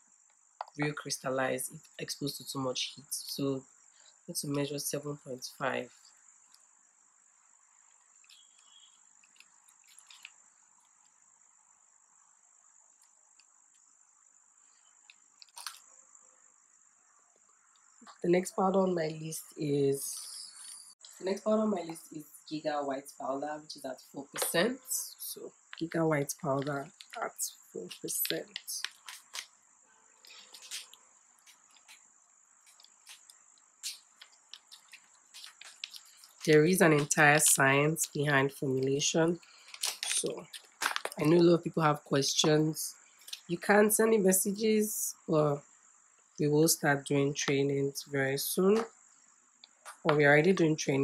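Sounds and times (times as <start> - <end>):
plastic pouch crinkling and clicks: 15.4 - 15.8, 28.8 - 29.5, 39.6 - 41.2.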